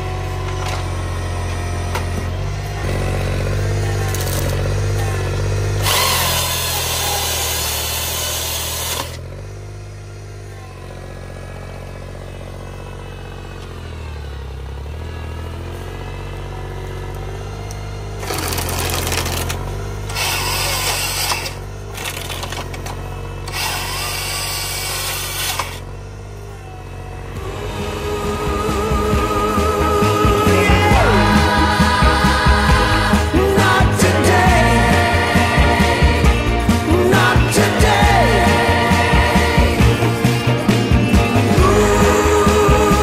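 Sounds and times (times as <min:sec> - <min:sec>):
chain saw cutting: 0:00.0 - 0:09.6, 0:16.8 - 0:28.2
tractor engine under load: 0:00.0 - 0:43.0.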